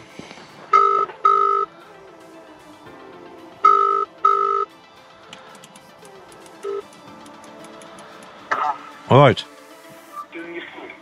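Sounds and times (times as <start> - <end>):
phone ringing tone beeps: 0.7 - 1.7, 3.6 - 4.7, 6.6 - 6.8.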